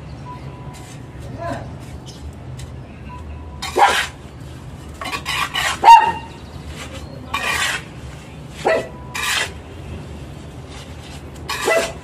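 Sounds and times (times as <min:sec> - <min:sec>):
trowel scraping wet mortar: 0:05.0 - 0:05.9, 0:06.7 - 0:09.6, 0:10.7 - 0:12.0.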